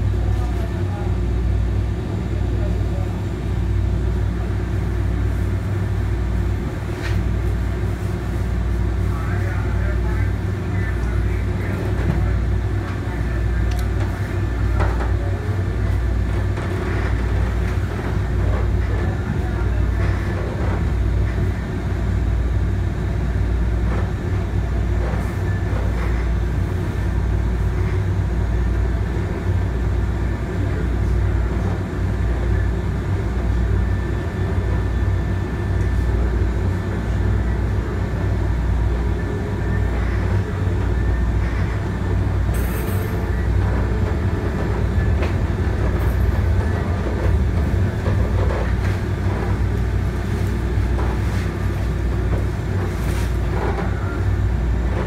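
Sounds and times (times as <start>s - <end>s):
light rail car rumble: 0.0s - 55.0s.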